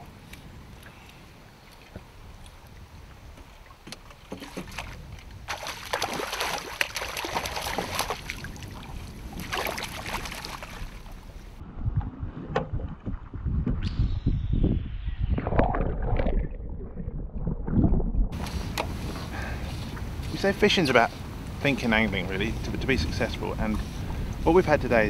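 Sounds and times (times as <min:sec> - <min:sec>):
water lapping and dripping: 0:00.3 - 0:11.6
fish thrashing in water: 0:04.3 - 0:11.3.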